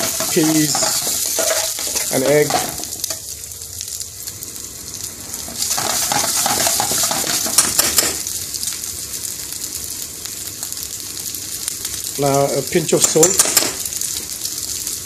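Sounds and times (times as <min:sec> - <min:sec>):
metal spoon scraping a pan: 0:00.0 - 0:03.2, 0:05.5 - 0:08.2
food sizzling in oil: 0:00.0 - 0:15.0.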